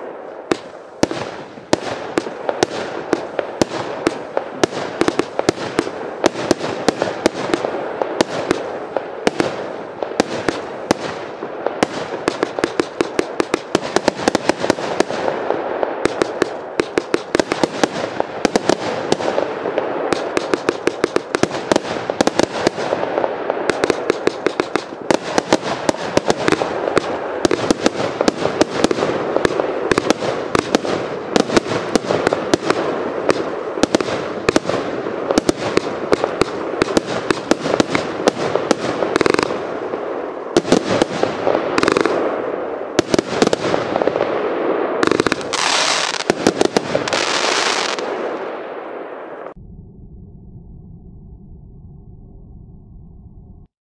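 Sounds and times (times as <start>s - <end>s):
firework cake shots and star bursts: 0.0s - 49.5s
firework hiss: 45.0s - 48.0s.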